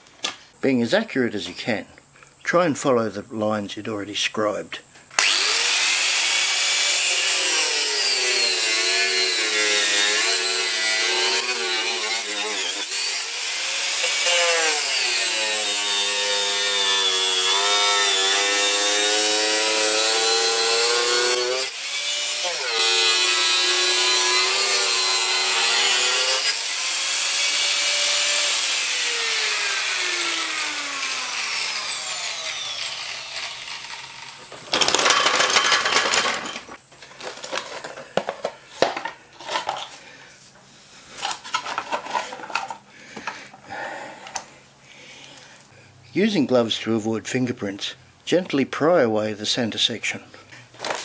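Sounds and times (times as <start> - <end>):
grinder winding down: 5.2 - 36.8
angle grinder cutting plastic: 5.2 - 40.0, 50.8 - 51.0.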